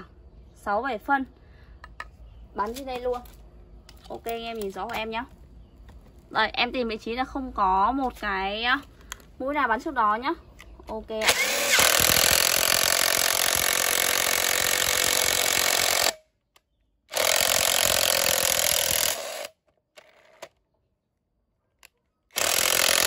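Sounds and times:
impact driver hammering screw: 0:11.2 - 0:16.2, 0:17.1 - 0:19.6, 0:22.3 - 0:23.0.

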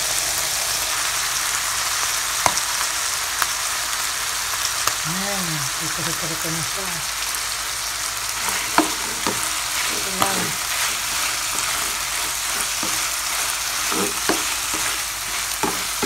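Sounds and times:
meat sizzling in hot oil: 0:00.0 - 0:16.0
spatula scraping a pan: 0:08.3 - 0:16.0.

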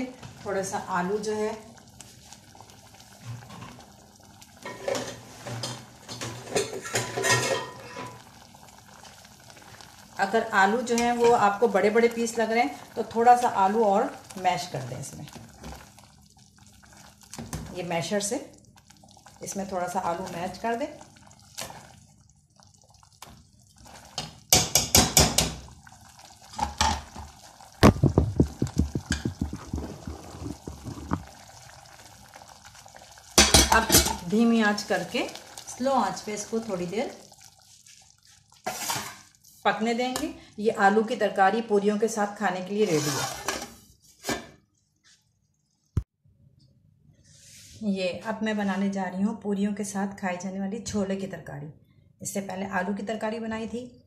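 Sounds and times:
thick curry boiling and plopping: 0:00.2 - 0:46.1
wooden spoon stirring liquid: 0:15.1 - 0:39.2
knocks and clinks against pot: 0:27.9 - 0:31.2.

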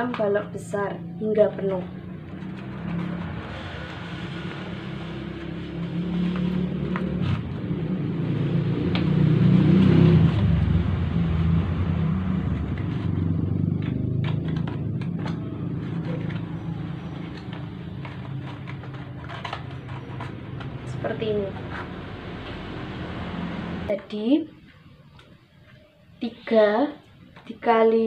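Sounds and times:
vehicle engine rumbling: 0:00.0 - 0:24.0
cardboard cubes clicking and tapping: 0:12.6 - 0:22.0.

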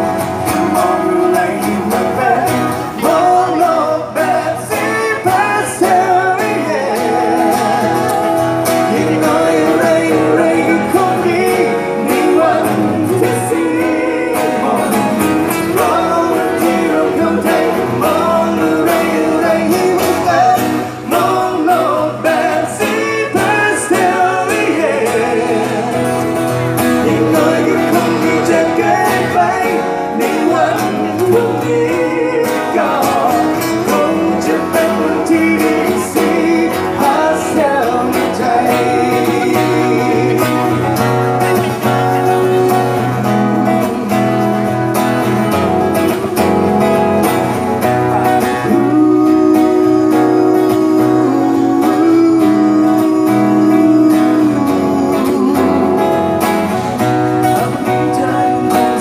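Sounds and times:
acoustic guitars strummed: 0:00.0 - 0:59.0
person singing: 0:00.0 - 0:59.0.

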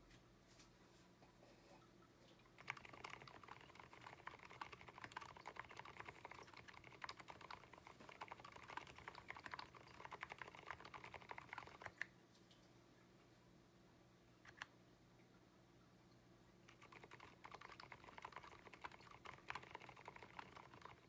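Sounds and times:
fast typing on mechanical keyboard: 0:02.6 - 0:12.0, 0:16.7 - 0:21.0.

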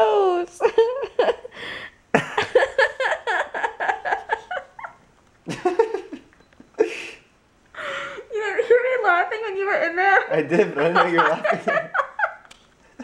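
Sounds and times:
woman laughing: 0:00.2 - 0:01.6, 0:02.2 - 0:07.1, 0:10.8 - 0:12.5.

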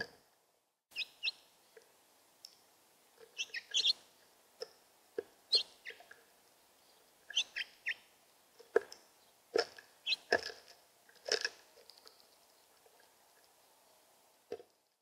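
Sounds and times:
finches chirping: 0:00.9 - 0:01.4, 0:03.3 - 0:04.0, 0:05.5 - 0:06.1, 0:07.3 - 0:08.1, 0:10.0 - 0:10.3.

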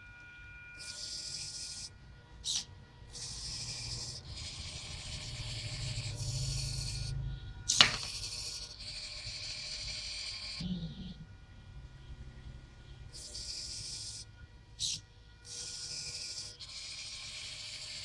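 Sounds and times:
servo motors buzzing: 0:00.8 - 0:11.0, 0:13.1 - 0:18.0.

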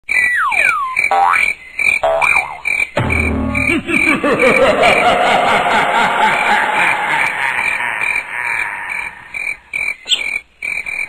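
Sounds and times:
cartoon thump: 0:03.0 - 0:04.1
falling tones: 0:03.0 - 0:08.2.

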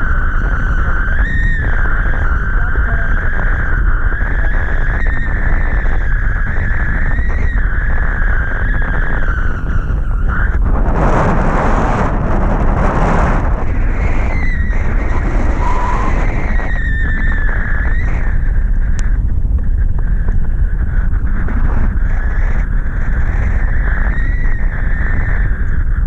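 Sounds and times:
high whistling tone: 0:00.0 - 0:11.0, 0:13.4 - 0:19.1
wind buffeting a microphone: 0:00.0 - 0:26.0.

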